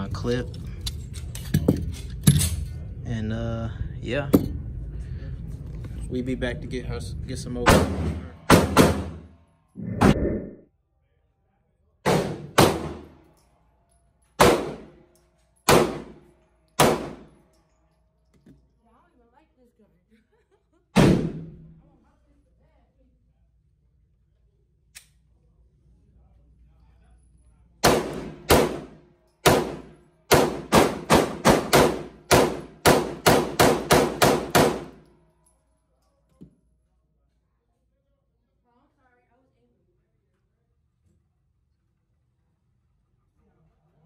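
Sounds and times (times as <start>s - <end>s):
pistol shots echoing indoors: 7.7s - 9.4s, 12.0s - 13.5s, 14.2s - 17.8s, 21.0s - 21.7s, 27.8s - 35.1s.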